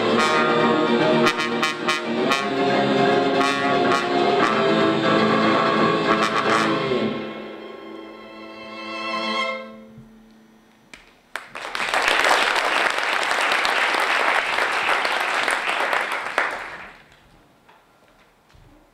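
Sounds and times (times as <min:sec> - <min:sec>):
live music held note: 0:00.0 - 0:10.9
audience applause: 0:11.3 - 0:17.2.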